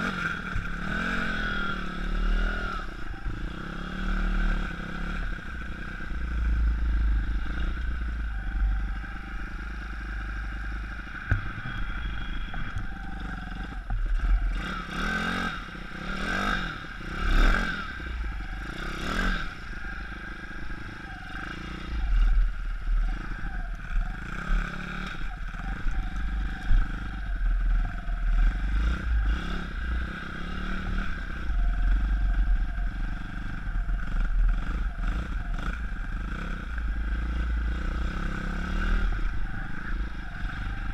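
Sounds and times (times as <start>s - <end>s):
pit bike engine revving: 0.0s - 40.9s.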